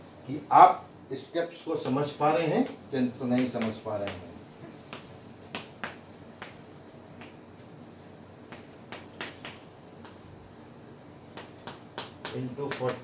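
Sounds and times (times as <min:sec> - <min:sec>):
chalk tapping on a blackboard: 0:03.3 - 0:06.6, 0:08.5 - 0:10.2, 0:11.3 - 0:13.0.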